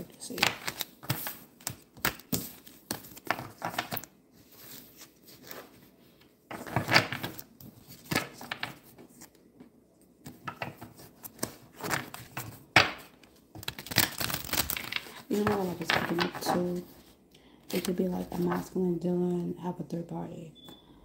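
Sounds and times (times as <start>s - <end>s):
cards shuffling: 0.2s - 5.8s, 10.2s - 17.0s.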